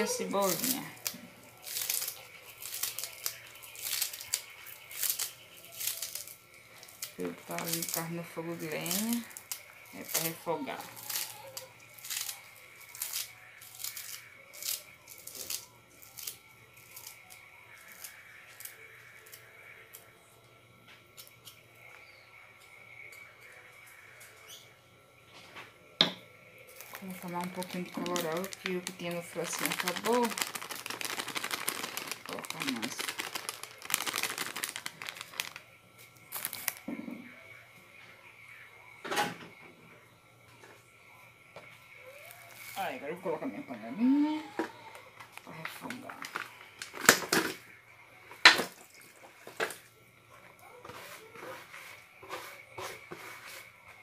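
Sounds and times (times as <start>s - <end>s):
plastic packet rustling: 0.0s - 16.3s, 26.8s - 35.6s, 36.2s - 36.9s, 45.8s - 47.6s
herbs torn by hand crackling: 0.4s - 20.1s, 26.8s - 35.6s, 36.3s - 36.8s.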